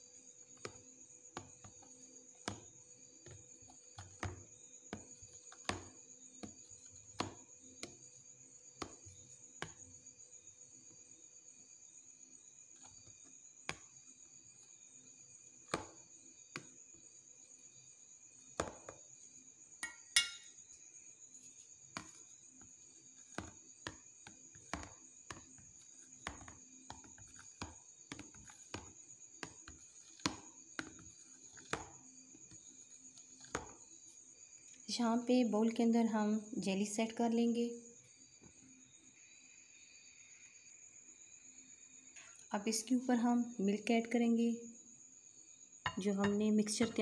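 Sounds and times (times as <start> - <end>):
knife tapping on plastic tub: 45.9 - 47.0.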